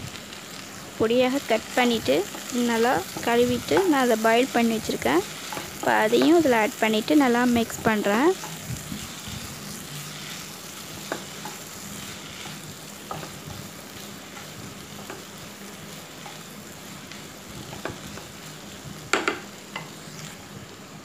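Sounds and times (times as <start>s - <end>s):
vegetables sizzling in oil: 0.0s - 21.0s
wooden spatula knocking pan: 19.1s - 19.5s.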